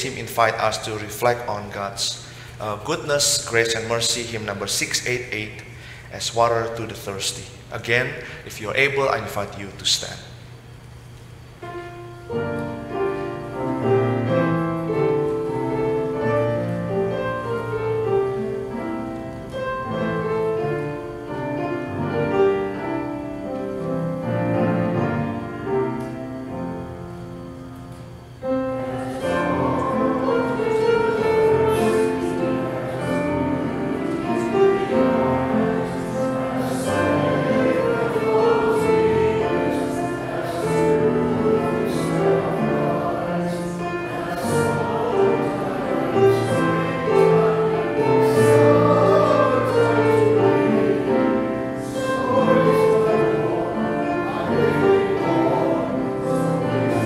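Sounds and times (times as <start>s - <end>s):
keyboard playing hymn: 11.4s - 57.0s
congregation singing: 11.6s - 57.0s.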